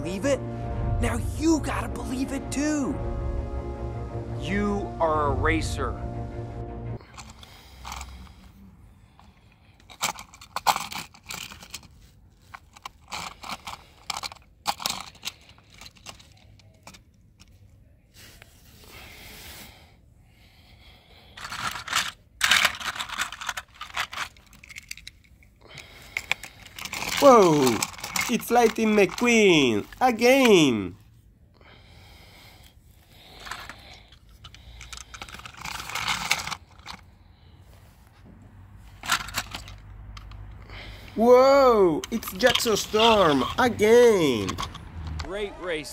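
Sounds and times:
plastic toy truck clicking and rattling: 7.1 - 8.3, 9.2 - 17.7, 21.4 - 30.7, 33.3 - 37.1, 39.0 - 41.3, 42.0 - 45.3.

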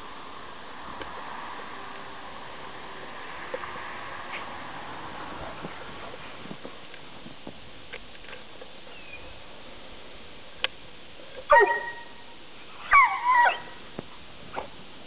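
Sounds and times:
dog barking: 11.5 - 12.1.

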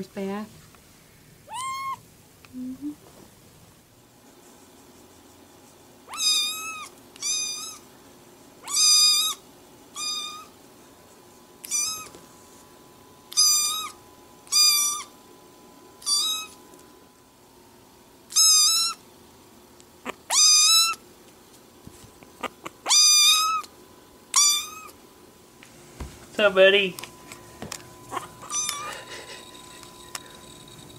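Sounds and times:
kitten meowing: 1.5 - 2.0, 6.1 - 7.8, 8.6 - 9.4, 10.0 - 10.5, 11.6 - 12.1, 13.3 - 15.1, 16.0 - 16.6, 18.3 - 19.0, 20.3 - 21.0, 22.8 - 23.7, 24.4 - 25.0, 28.1 - 28.9.

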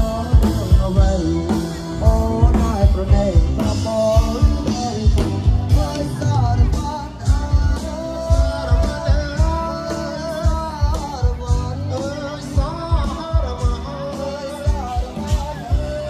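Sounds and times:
live band with singer: 0.0 - 16.0.

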